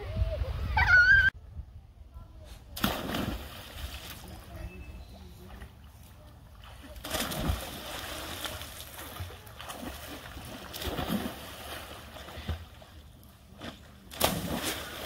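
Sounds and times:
person diving into water splash: 0:02.8 - 0:04.1, 0:07.0 - 0:12.8, 0:14.1 - 0:15.0
water churning and sloshing: 0:05.4 - 0:15.0.

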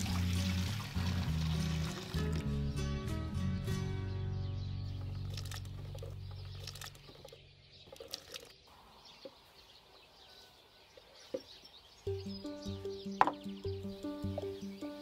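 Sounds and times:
low background music: 0:00.0 - 0:05.6, 0:12.1 - 0:15.0
faint bird chirps: 0:04.1 - 0:15.0.

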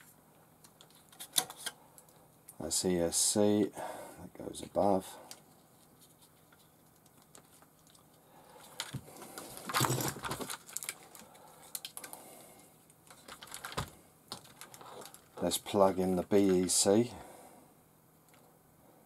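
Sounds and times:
hands rustling wiring: 0:04.6 - 0:17.0
plastic connectors clicking: 0:10.5 - 0:12.2.

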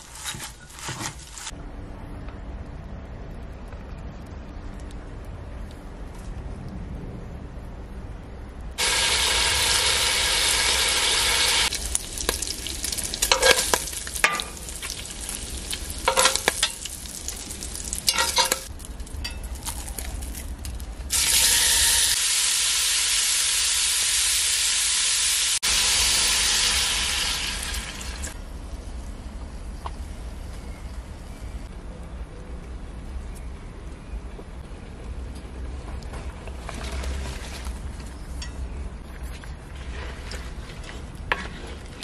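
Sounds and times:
bacon sizzling in hot oil: 0:08.8 - 0:18.8, 0:21.1 - 0:28.4
meat sizzling in hot fat: 0:08.8 - 0:18.8, 0:21.1 - 0:28.4
stirring and scraping in a pot: 0:12.3 - 0:15.0, 0:16.1 - 0:16.9, 0:18.1 - 0:19.4, 0:36.4 - 0:42.0.

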